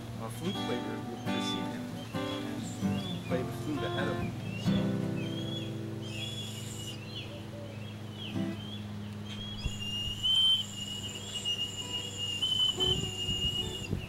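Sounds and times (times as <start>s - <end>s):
bone whistle blown: 5.3s - 7.0s, 9.4s - 14.0s.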